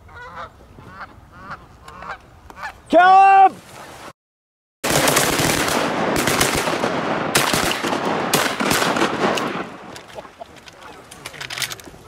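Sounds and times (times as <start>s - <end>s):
shotgun fire: 4.8s - 9.8s.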